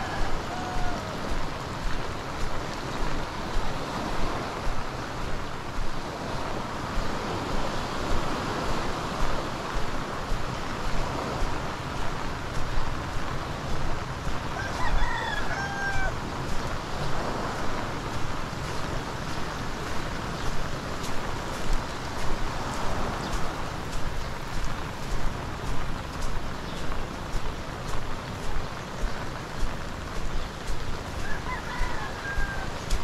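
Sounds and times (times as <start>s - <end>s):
rooster crowing: 0.0s - 1.4s, 14.6s - 16.2s, 31.2s - 33.0s
heavy rain hissing: 0.0s - 33.0s.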